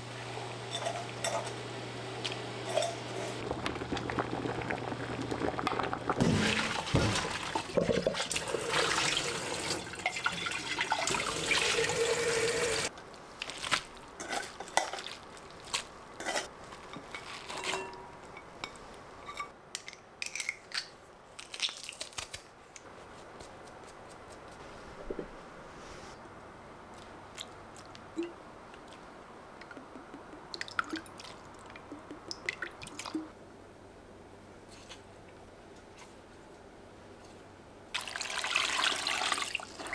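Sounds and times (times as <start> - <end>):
dishes and utensils clinking: 0.7 - 1.6, 2.6 - 3.3, 16.2 - 19.6.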